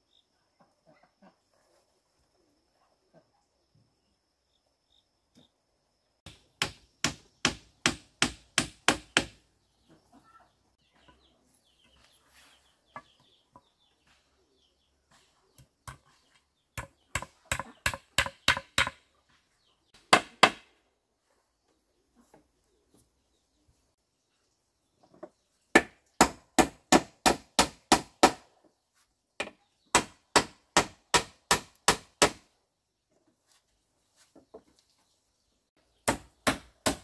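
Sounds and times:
hand tool striking wood: 0:06.3 - 0:09.4, 0:16.8 - 0:19.0, 0:20.0 - 0:20.7, 0:25.2 - 0:28.4, 0:29.4 - 0:32.4, 0:36.0 - 0:37.0.

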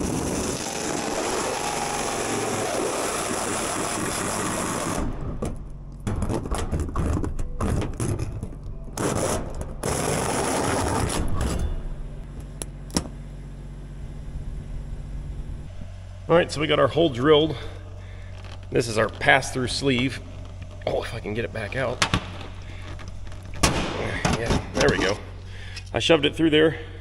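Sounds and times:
drill hole saw cutting steel: 0:00.0 - 0:05.0.

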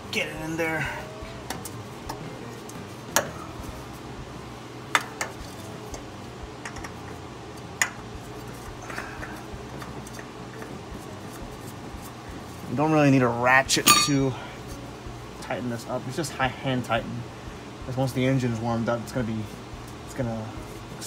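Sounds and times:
low hum: 0:00.0 - 0:12.7.

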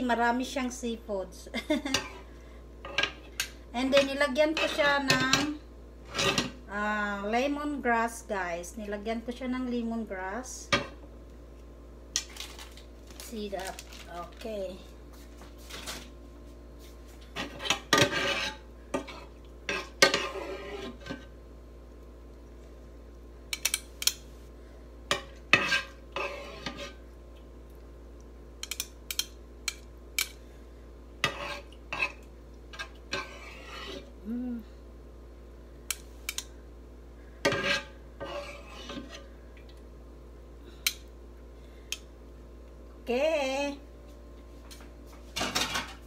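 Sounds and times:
faint hum: 0:00.0 - 0:46.0
utensils scraping a pan: 0:01.9 - 0:06.6, 0:17.3 - 0:21.3, 0:25.1 - 0:27.0, 0:31.2 - 0:34.1, 0:37.4 - 0:39.3.

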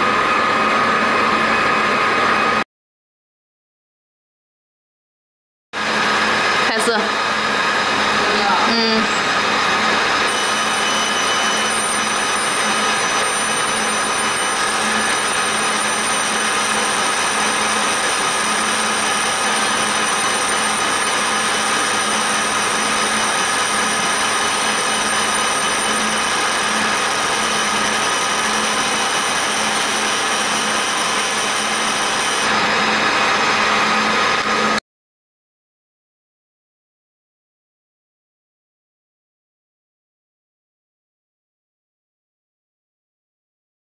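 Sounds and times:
high steady tones: 0:10.3 - 0:32.5.

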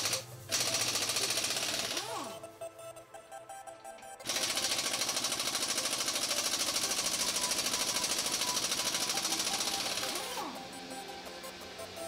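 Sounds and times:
pneumatic impact wrench hammering: 0:00.0 - 0:02.3, 0:04.2 - 0:10.7.

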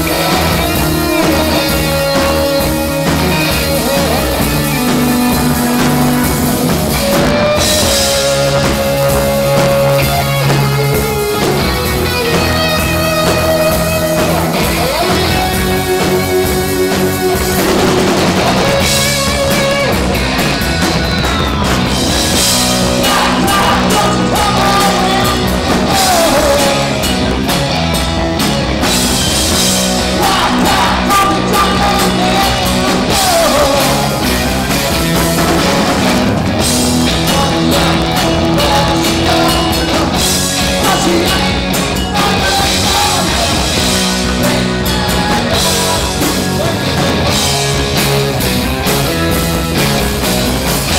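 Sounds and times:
person singing: 0:00.0 - 0:20.0, 0:22.8 - 0:27.1, 0:30.0 - 0:34.9, 0:37.0 - 0:47.7
bass guitar: 0:00.0 - 0:50.9
drum kit: 0:00.0 - 0:50.9
electric guitars: 0:00.0 - 0:50.9.

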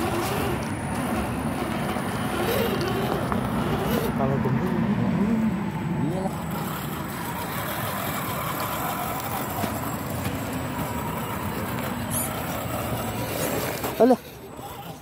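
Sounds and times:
toy truck motor whining: 0:00.0 - 0:04.4, 0:06.0 - 0:15.0
faint voices: 0:13.7 - 0:15.0.

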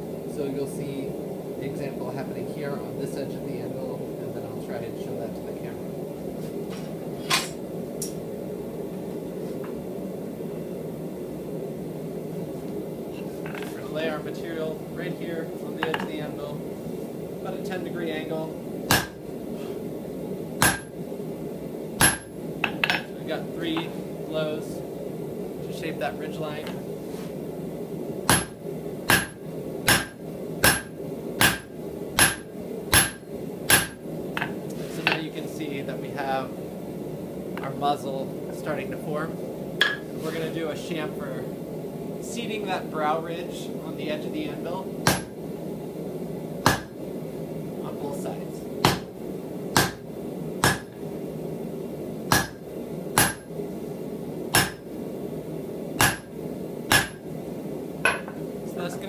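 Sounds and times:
hammer striking metal on anvil: 0:18.9 - 0:19.2, 0:20.6 - 0:20.9, 0:22.0 - 0:23.1, 0:28.3 - 0:34.5, 0:45.1 - 0:45.3, 0:46.7 - 0:46.9, 0:48.8 - 0:49.1, 0:49.8 - 0:50.0, 0:50.6 - 0:50.9, 0:52.3 - 0:52.6, 0:53.2 - 0:53.4, 0:54.6 - 0:54.8, 0:56.0 - 0:56.3, 0:56.9 - 0:57.2, 0:58.1 - 0:58.4.

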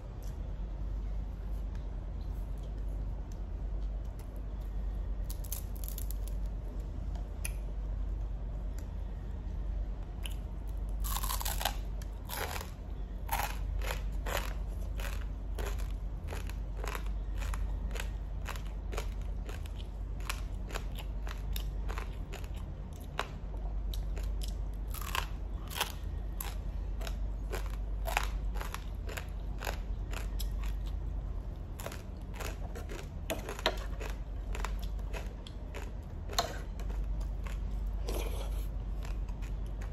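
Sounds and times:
low steady hum: 0:00.0 - 0:39.9
bread roll crunching when chewed: 0:05.3 - 0:06.5, 0:10.2 - 0:39.9.

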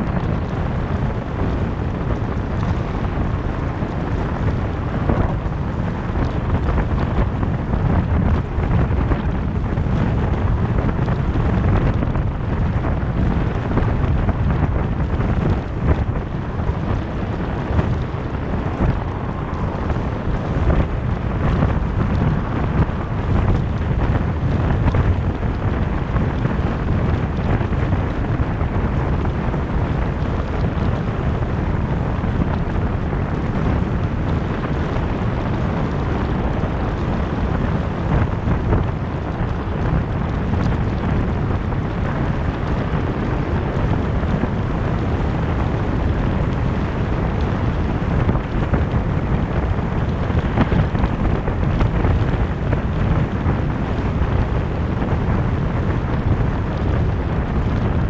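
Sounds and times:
car tyre noise on road: 0:00.0 - 0:58.0
wind buffeting microphone: 0:00.0 - 0:58.0.

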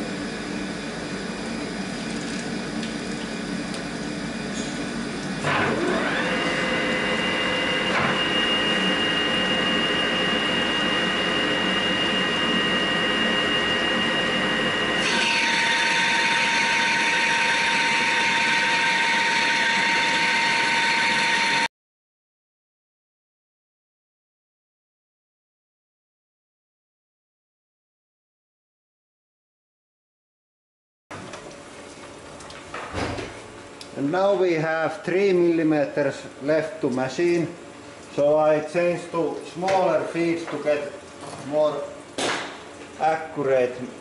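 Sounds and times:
metal lathe running whine: 0:03.3 - 0:21.7.

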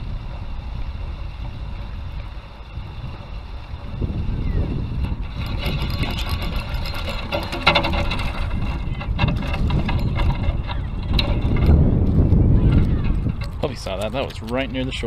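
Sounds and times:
fishing reel clicking whir: 0:00.0 - 0:11.9
wind rumbling on microphone: 0:00.0 - 0:15.0.

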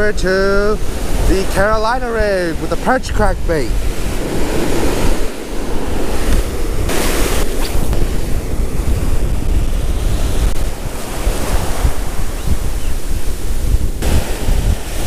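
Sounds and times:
ocean surf breaking: 0:00.0 - 0:15.0
wind rumble on microphone: 0:00.0 - 0:15.0.

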